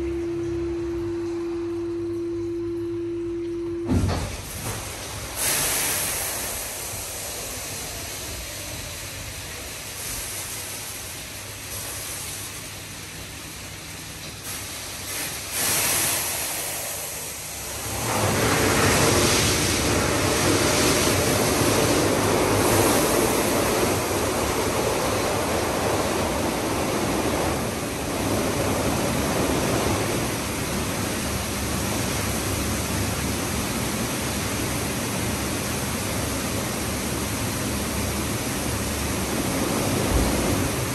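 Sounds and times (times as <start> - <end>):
car wash machinery rushing: 3.9 - 40.9
water spraying onto car: 4.4 - 13.6, 14.4 - 40.9.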